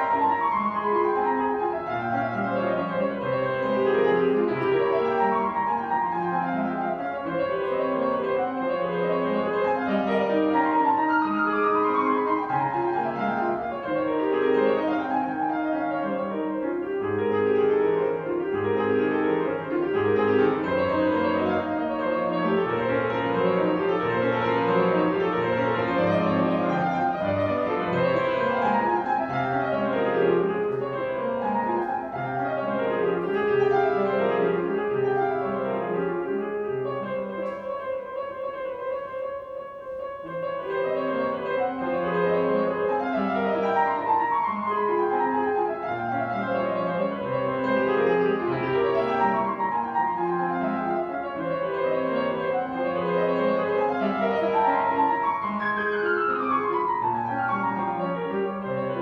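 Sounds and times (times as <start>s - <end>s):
grand piano classical piece: 0.0s - 59.0s.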